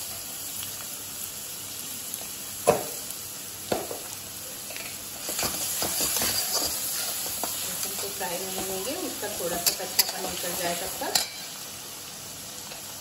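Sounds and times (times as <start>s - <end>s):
garlic sizzling in hot oil: 0.0s - 13.0s
spatula stirring and scraping: 4.7s - 11.6s
metal spatula clinking on pan: 11.1s - 11.5s.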